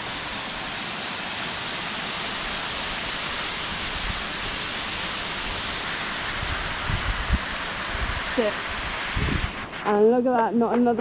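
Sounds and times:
river water flowing: 0.0 - 9.8.

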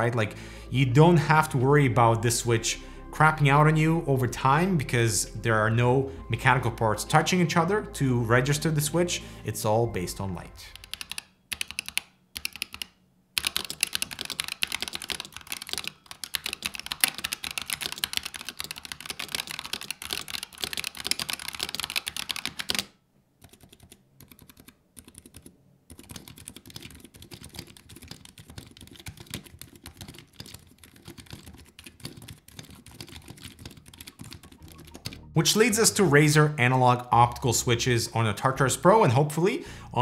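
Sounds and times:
fast typing on keyboard: 10.7 - 35.3.

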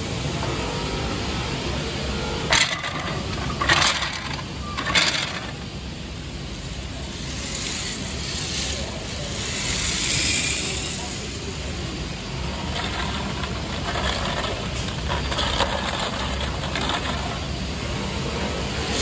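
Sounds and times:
beads rattling in wooden boxes: 2.5 - 5.7, 12.6 - 17.5.

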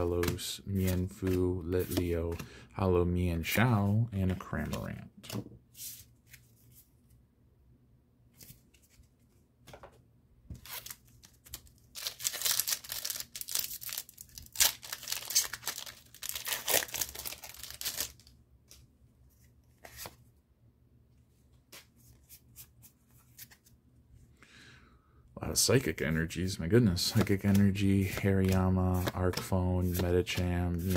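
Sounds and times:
foil wrapper crinkling and tearing: 10.7 - 18.3.

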